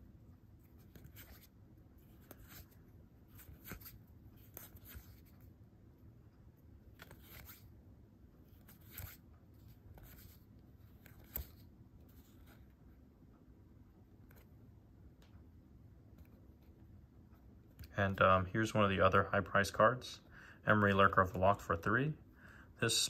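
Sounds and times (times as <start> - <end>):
low room hum: 0.0 - 23.0
cards sliding and clicking: 0.6 - 5.5, 6.9 - 7.7, 8.5 - 12.8.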